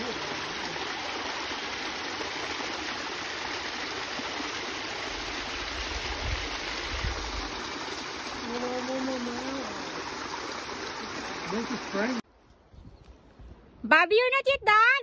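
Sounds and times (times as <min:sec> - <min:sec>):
waterfall splashing: 0:00.0 - 0:12.2.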